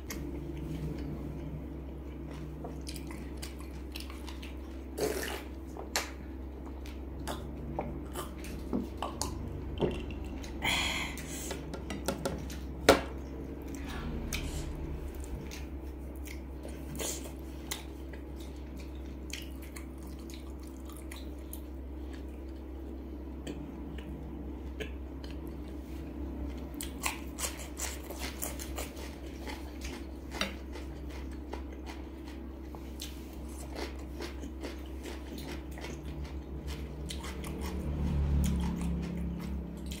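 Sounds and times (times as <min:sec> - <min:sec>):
steady low hum: 0:00.0 - 0:40.0
wet chewing and biting: 0:26.8 - 0:40.0.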